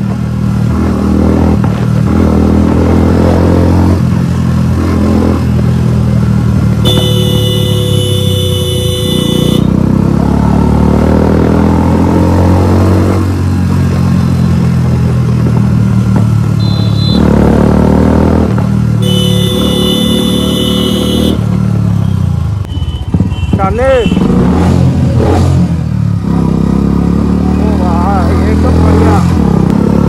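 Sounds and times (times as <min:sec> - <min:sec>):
motorcycle engine revving: 0:00.0 - 0:30.0
vehicle horn blasts: 0:06.8 - 0:09.8, 0:16.6 - 0:17.3, 0:19.0 - 0:21.4.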